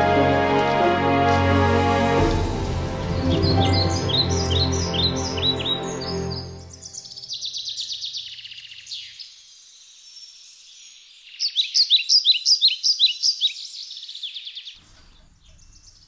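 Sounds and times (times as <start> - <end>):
songbirds singing: 3.0 - 16.0
bird trill: 3.1 - 9.2, 11.3 - 16.0.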